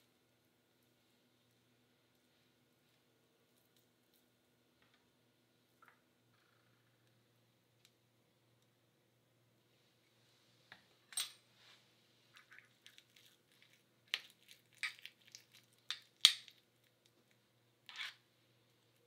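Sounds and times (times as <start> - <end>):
spoon scraping ceramic cup: 17.9 - 18.2.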